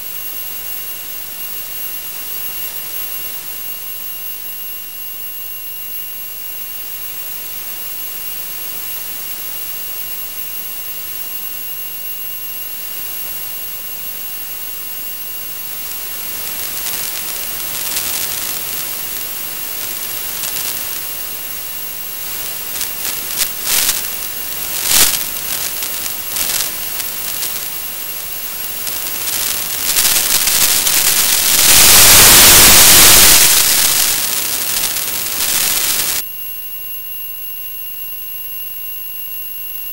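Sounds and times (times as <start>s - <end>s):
faint constant high tones: 0.0s - 39.9s
static hiss: 12.8s - 36.2s
static crackles: 15.2s - 36.2s.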